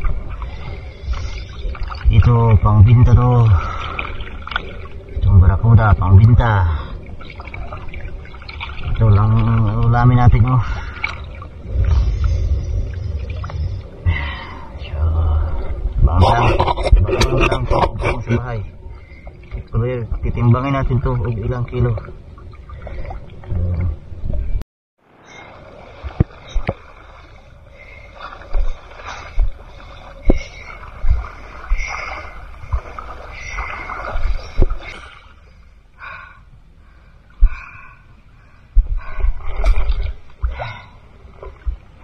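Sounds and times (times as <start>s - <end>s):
seawater sloshing and splashing: 0.0s - 14.6s, 25.3s - 35.8s, 39.0s - 42.0s.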